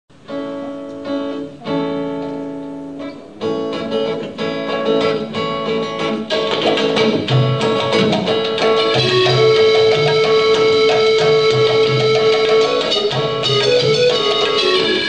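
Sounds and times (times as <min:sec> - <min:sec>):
acoustic guitar strumming: 0:00.1 - 0:15.0
held chords: 0:00.1 - 0:15.0
percussion: 0:03.7 - 0:15.0.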